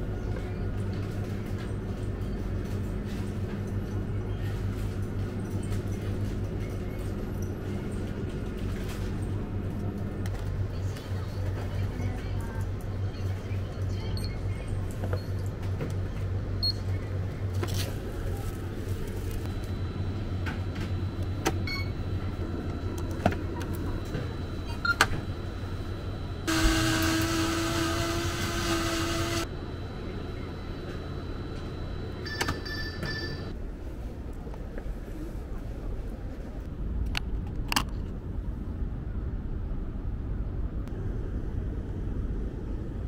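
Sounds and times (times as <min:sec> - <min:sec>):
blender motor whine: 0:26.5 - 0:29.5.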